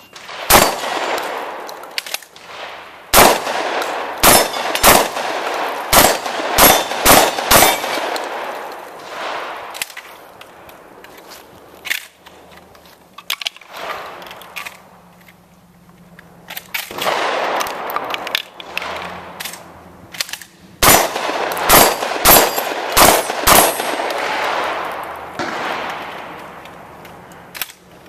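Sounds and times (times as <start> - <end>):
shotgun shots: 0.2 - 9.8, 16.9 - 18.0, 20.8 - 26.4.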